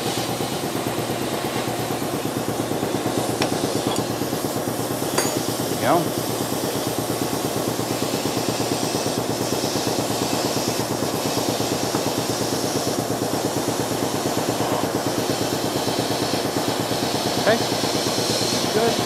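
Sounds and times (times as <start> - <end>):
metal lathe clattering: 5.0 - 6.0.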